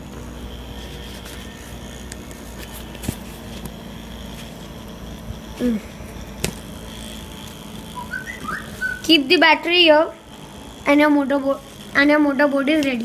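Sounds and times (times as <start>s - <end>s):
hobby motor whirring: 0.0s - 13.0s.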